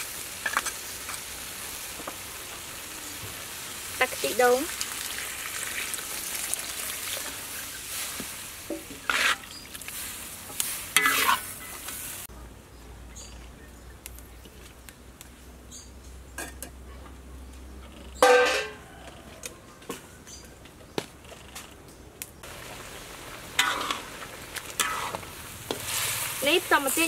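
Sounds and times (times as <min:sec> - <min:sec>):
stir-fry sizzling in a wok: 0:00.0 - 0:12.3, 0:22.4 - 0:27.0
metal ladle scraping a pan: 0:07.0 - 0:12.0, 0:23.6 - 0:27.0.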